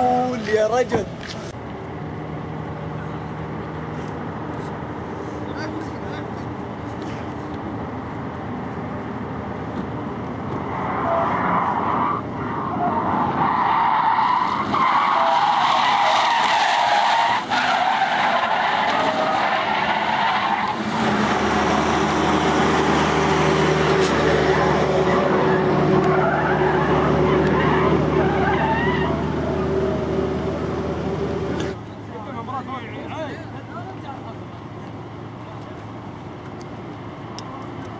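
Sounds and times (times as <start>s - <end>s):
tyres screeching: 10.6s - 31.8s.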